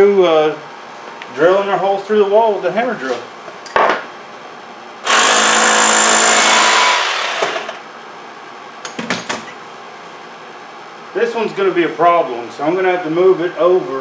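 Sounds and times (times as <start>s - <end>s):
hammer drill boring into concrete: 5.0s - 7.8s.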